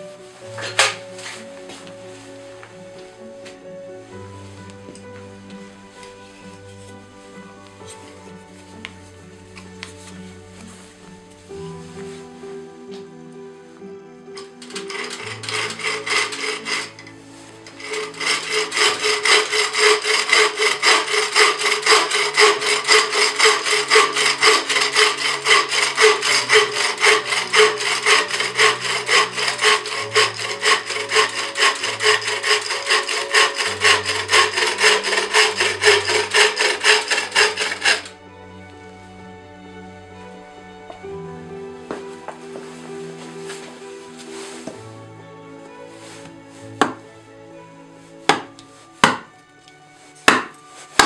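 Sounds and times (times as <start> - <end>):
faint background music: 0.0 - 51.0
saw cutting wood: 14.4 - 38.2, 50.3 - 51.0.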